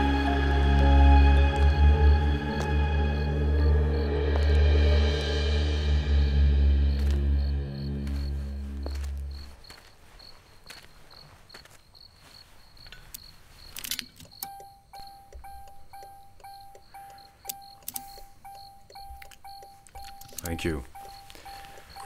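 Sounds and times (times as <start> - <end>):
music: 0.0 - 9.4
crickets chirping: 0.0 - 22.0
repeated electronic beep: 14.3 - 22.0.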